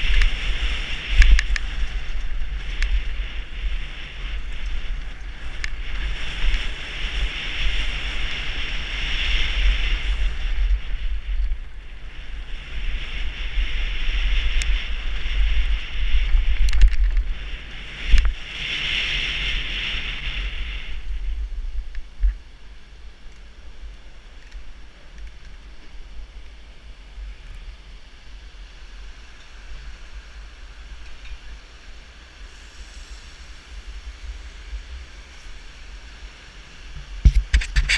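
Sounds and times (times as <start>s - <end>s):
bike tyres rattling: 0.0s - 18.9s
bike rolling on pavement: 0.0s - 37.9s
wind buffeting microphone: 0.0s - 37.9s.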